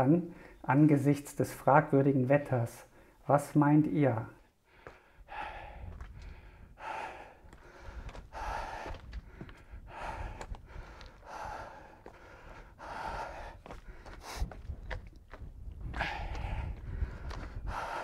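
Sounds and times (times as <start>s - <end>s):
man breathing hard: 4.5s - 14.8s, 15.8s - 18.0s.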